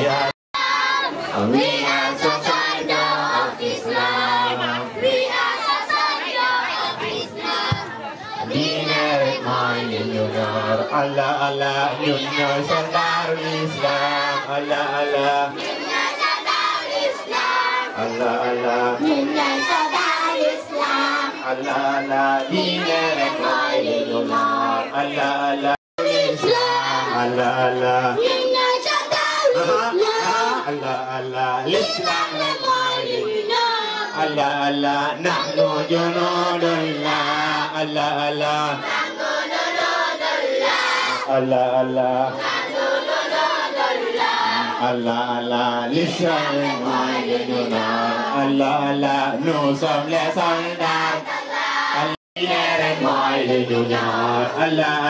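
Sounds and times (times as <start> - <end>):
group singing in chorus: 0.0 - 55.0.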